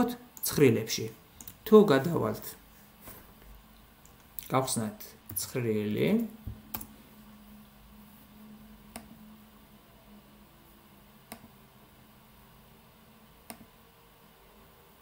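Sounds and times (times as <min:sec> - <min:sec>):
faint room hum: 0:00.0 - 0:15.0
computer mouse clicks: 0:01.4 - 0:01.6, 0:06.2 - 0:06.9, 0:08.9 - 0:09.2, 0:11.3 - 0:11.6, 0:13.4 - 0:13.7.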